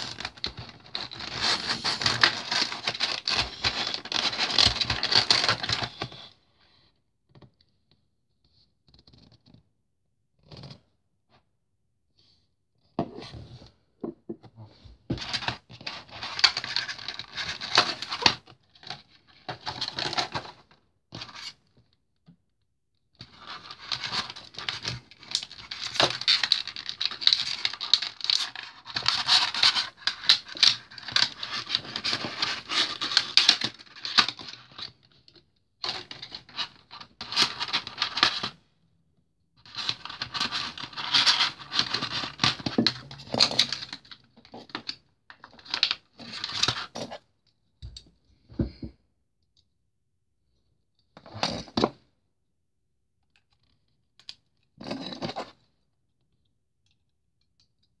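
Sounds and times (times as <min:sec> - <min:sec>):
plastic packaging crinkling and scraping: 0:00.0 - 0:06.3, 0:15.1 - 0:20.6, 0:23.2 - 0:35.1, 0:35.8 - 0:38.6, 0:39.6 - 0:47.2.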